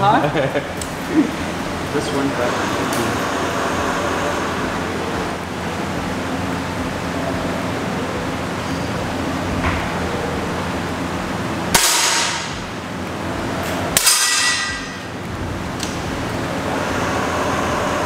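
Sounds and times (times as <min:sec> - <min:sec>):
ventilation hum: 0:00.0 - 0:18.0
air pistol shots: 0:11.8 - 0:12.6
metallic ringing: 0:13.7 - 0:15.2.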